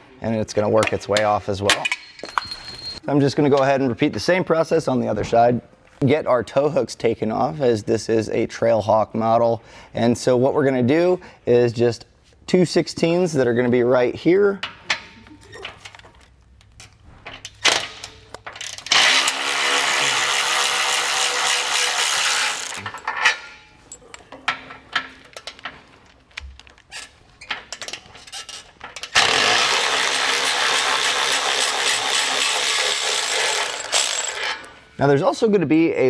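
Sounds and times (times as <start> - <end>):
electric ratchet running: 18.6 - 22.8, 29.0 - 34.6.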